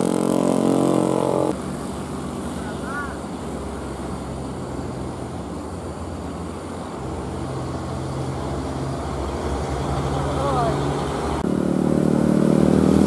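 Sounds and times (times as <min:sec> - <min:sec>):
truck diesel engine droning: 0:00.0 - 0:13.0.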